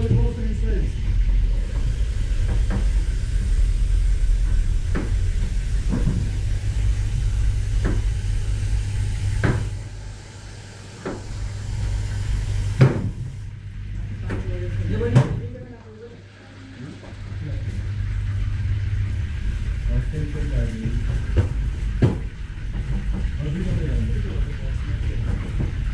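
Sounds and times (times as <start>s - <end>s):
low kitchen rumble: 0.0s - 25.9s
sharp knocks of kitchen work: 7.8s - 8.1s, 9.3s - 9.8s, 11.0s - 11.4s, 12.7s - 13.3s, 20.9s - 23.4s.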